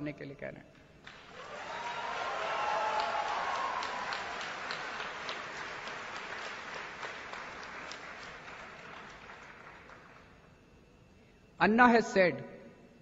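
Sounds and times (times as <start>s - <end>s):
audience applauding: 1.0s - 10.3s.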